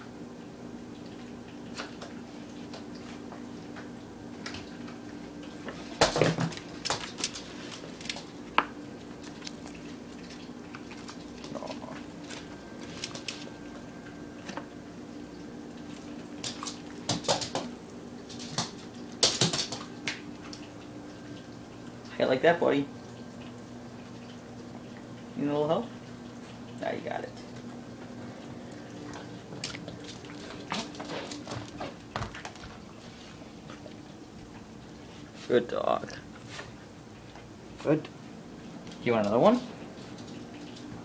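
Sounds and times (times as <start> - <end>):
steady low hum: 0.0 - 41.0
dog paws on floor: 1.8 - 14.7, 15.8 - 20.7, 29.0 - 35.5, 36.3 - 41.0.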